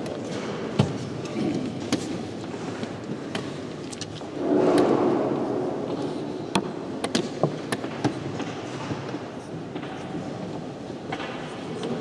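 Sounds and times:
broad swell of noise: 4.3 - 7.0.

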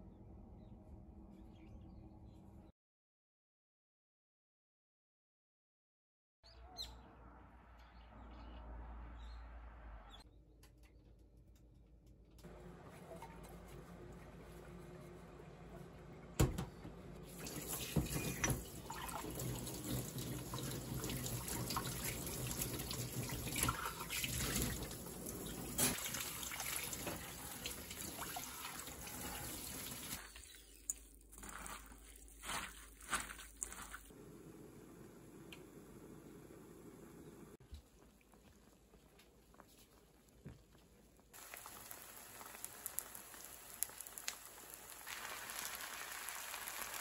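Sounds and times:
tap water running into sink: 17.2 - 30.2
water splashing: 17.2 - 34.1.

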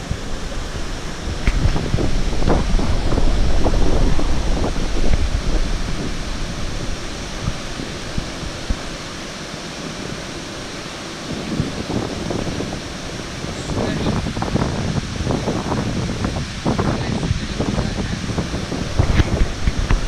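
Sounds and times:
rocky river rushing: 0.0 - 20.0
wind buffeting microphone: 0.0 - 20.0.

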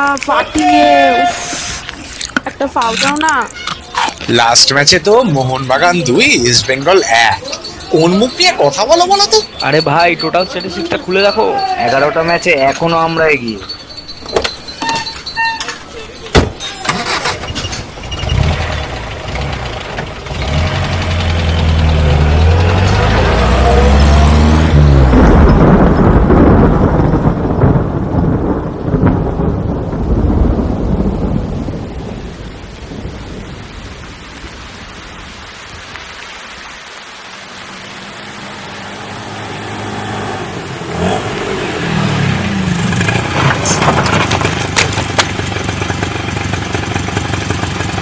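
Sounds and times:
vehicle rumbling with rising whine: 18.0 - 27.2.

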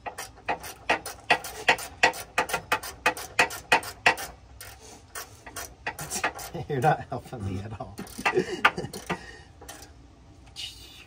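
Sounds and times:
hand ratchet clicking: 0.0 - 6.6, 8.0 - 9.9.

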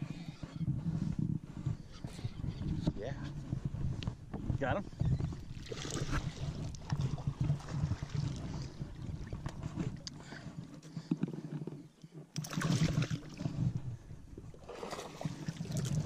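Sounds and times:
wind on microphone: 0.0 - 11.2, 12.6 - 16.0
water splashing against boat: 4.6 - 11.0, 12.2 - 16.0.

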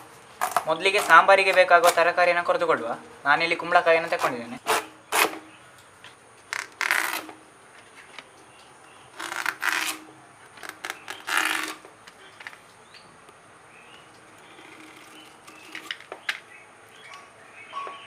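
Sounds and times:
blade scraping through gourd: 4.0 - 5.4, 6.6 - 7.4, 9.2 - 11.8.

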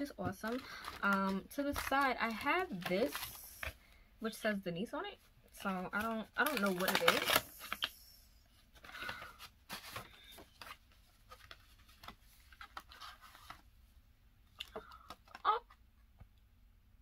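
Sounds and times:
paper rustling: 0.2 - 3.8, 6.0 - 8.0, 8.6 - 13.7.

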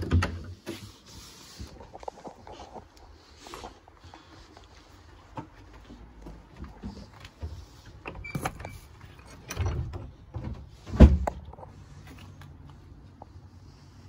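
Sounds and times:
footsteps: 0.7 - 8.0
door being pushed open: 8.0 - 11.4
door squeak: 8.1 - 9.9.

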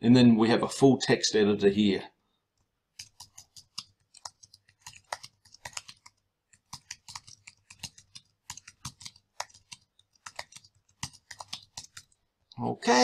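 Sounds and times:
keyboard typing: 2.6 - 12.2.

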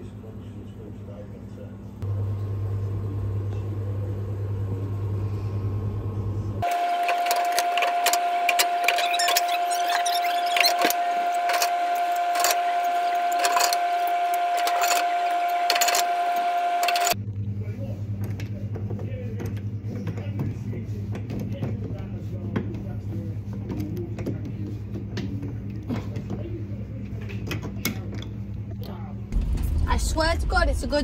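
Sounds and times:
vending machine humming: 0.1 - 21.2.

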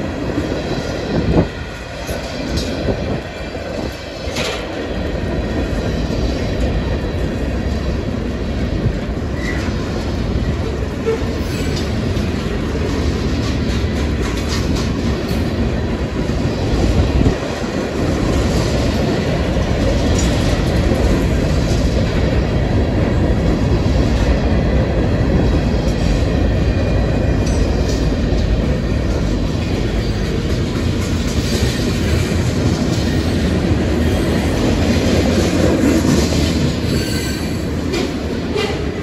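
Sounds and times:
steel wheels rumbling on rail: 0.0 - 39.0.

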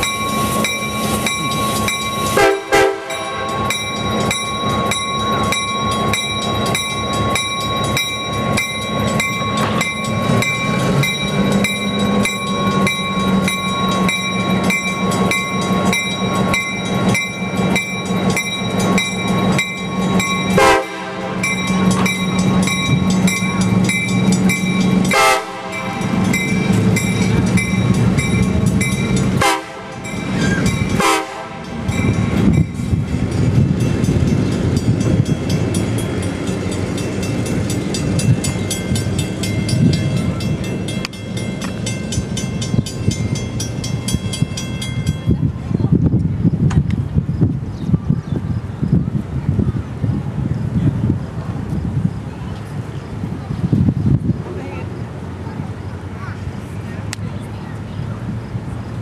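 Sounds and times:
crossing bell ringing rapidly: 0.0 - 45.8
rail cars rolling on track: 0.0 - 59.0.

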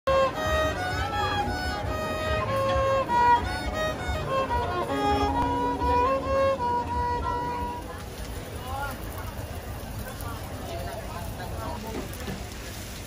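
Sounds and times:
solo violin melody: 0.1 - 8.0.

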